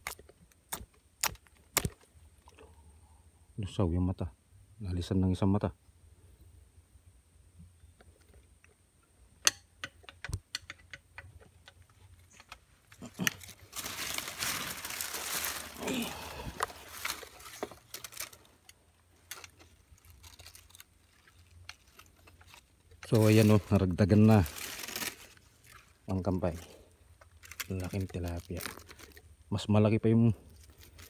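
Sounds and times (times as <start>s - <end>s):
dry leaves rustling and crackling: 12.3s - 29.2s, 30.4s - 31.0s.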